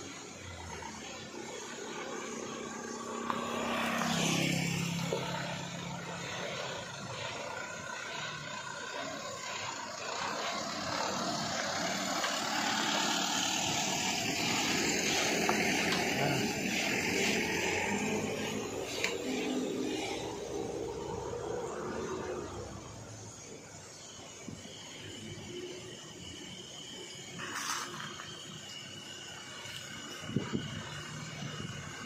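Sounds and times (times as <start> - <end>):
truck diesel engine passing: 0.0 - 24.0.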